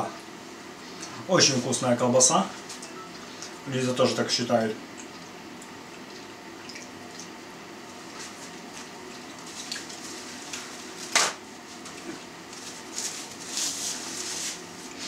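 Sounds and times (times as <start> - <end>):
paper towel rustling: 8.1 - 15.0.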